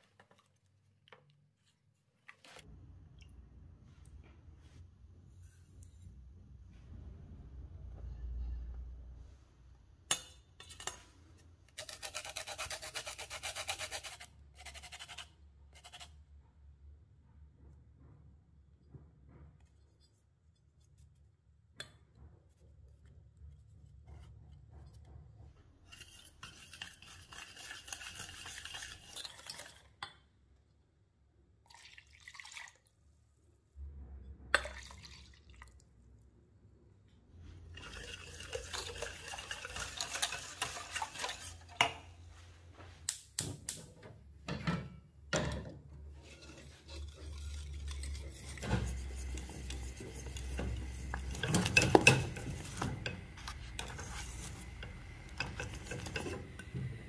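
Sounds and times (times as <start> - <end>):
utensils clinking and scraping dishes: 10.1 - 11.2, 37.7 - 42.2, 46.2 - 57.0.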